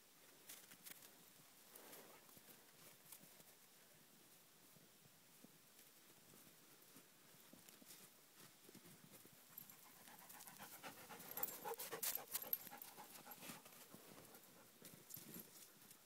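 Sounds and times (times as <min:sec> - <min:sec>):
dog panting: 0:09.6 - 0:14.7.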